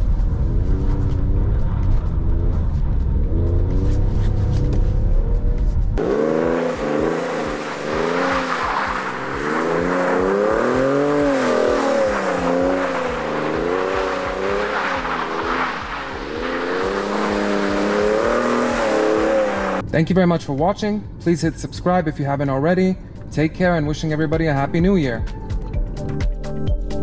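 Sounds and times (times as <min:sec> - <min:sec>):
car engine revving: 0:00.0 - 0:20.0.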